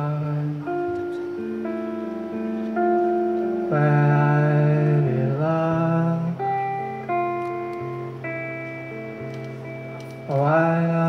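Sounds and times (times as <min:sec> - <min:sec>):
slow acoustic guitar song: 0:00.0 - 0:11.0.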